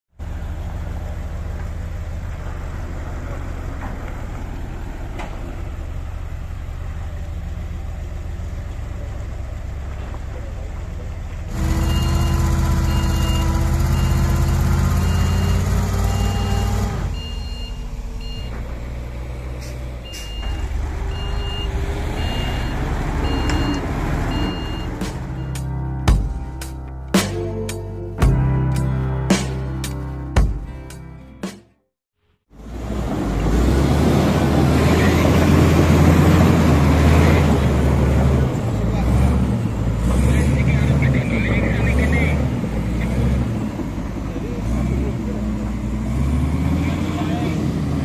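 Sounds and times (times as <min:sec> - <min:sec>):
diesel truck engine running: 0:00.1 - 0:31.4, 0:32.5 - 0:48.0
reversing alarm beeping: 0:11.6 - 0:18.7, 0:19.6 - 0:26.5.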